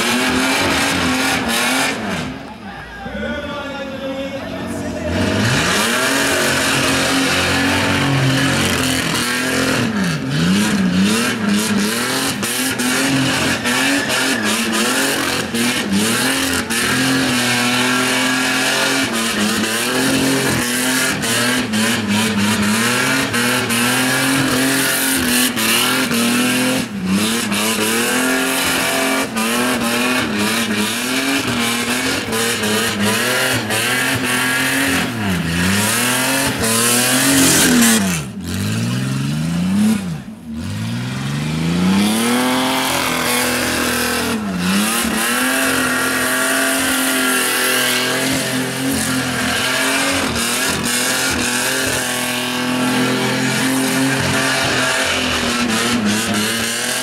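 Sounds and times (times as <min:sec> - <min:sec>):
car engine revving: 0:00.0 - 0:02.6, 0:04.6 - 0:57.0
tyres squealing: 0:12.3 - 0:26.7.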